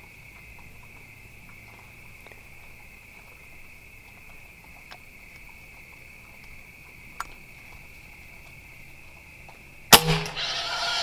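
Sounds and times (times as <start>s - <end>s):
night insects trilling: 0.0s - 11.0s
sharp click: 10.0s - 11.0s.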